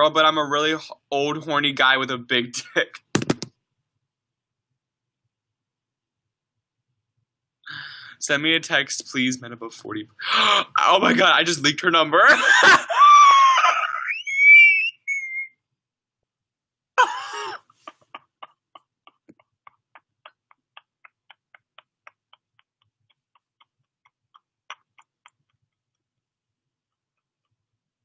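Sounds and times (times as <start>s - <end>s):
young man stifled laughter: 12.4s - 15.1s.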